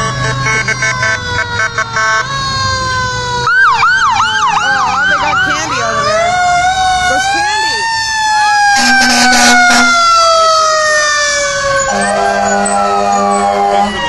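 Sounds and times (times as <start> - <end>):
siren wailing: 0.0 - 14.0
fast yelping siren: 0.4 - 14.0
quick repeated siren tones: 8.6 - 14.0.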